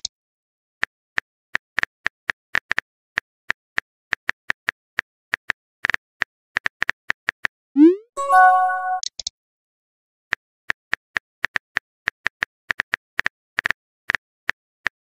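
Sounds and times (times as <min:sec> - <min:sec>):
short ringing chime: 0:08.2 - 0:09.0.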